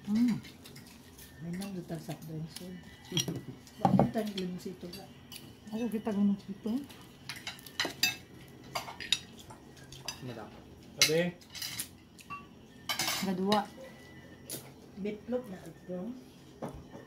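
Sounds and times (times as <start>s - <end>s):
cutlery clinking on plates: 3.1s - 5.0s, 11.0s - 13.7s.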